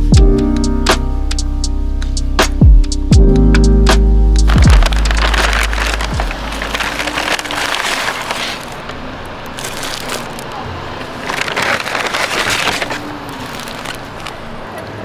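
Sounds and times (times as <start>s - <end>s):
paper bag crinkling: 4.4s - 14.6s.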